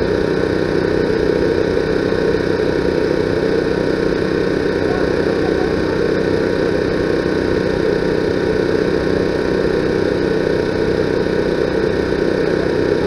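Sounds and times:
engine-like drone: 0.0 - 13.0.

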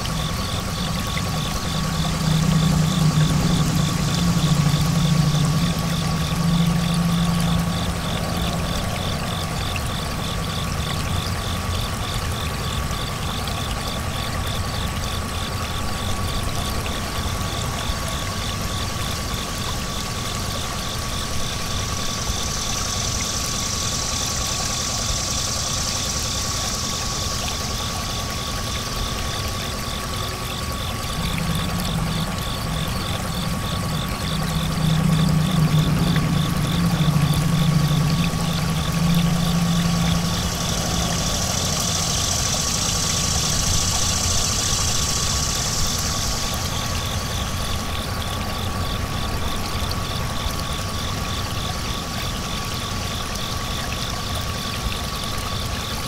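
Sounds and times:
thin whine: 0.0 - 11.2, 29.6 - 47.8
engine-like drone: 0.0 - 56.0
high hiss: 21.6 - 48.2.

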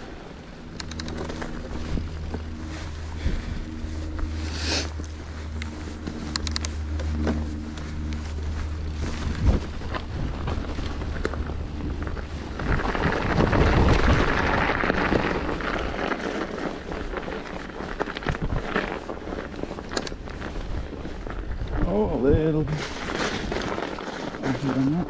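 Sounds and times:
bike tyres on snow: 0.0 - 25.0
low steady hum: 0.0 - 25.0
wind buffeting microphone: 7.1 - 25.0.

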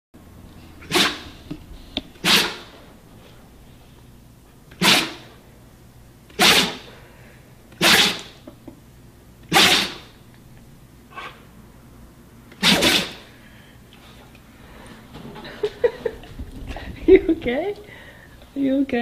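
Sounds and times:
dog sneezing: 0.8 - 1.4, 2.2 - 2.8, 4.7 - 5.4, 6.3 - 7.0, 7.7 - 8.4, 9.4 - 10.2, 12.5 - 13.4.

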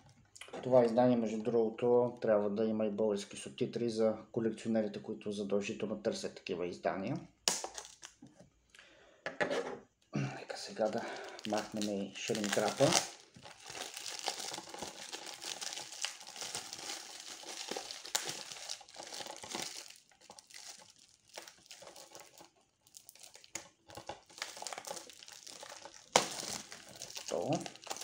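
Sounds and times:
plastic wrap crinkling and tearing: 7.5 - 8.2, 10.7 - 28.0.

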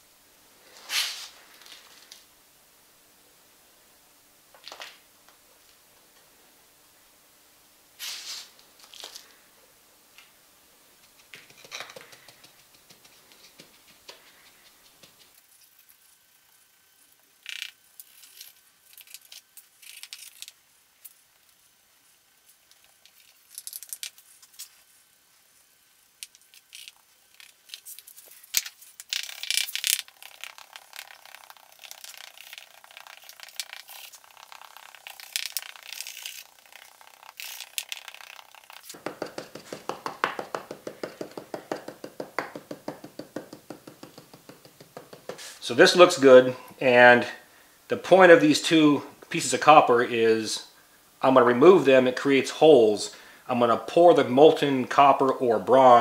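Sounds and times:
gritty sand scrapes: 0.7 - 2.1, 8.0 - 8.5.

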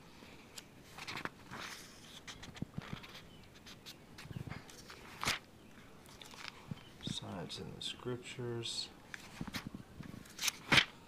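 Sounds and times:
paper pages rustling: 0.8 - 7.2, 9.1 - 11.0.

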